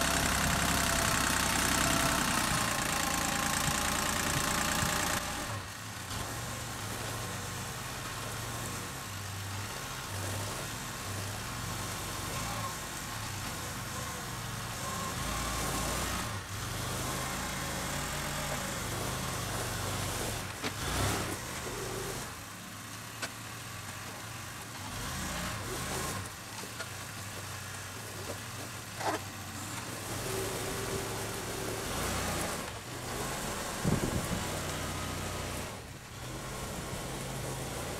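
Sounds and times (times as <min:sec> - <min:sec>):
tractor engine at low revs: 0:00.0 - 0:37.9.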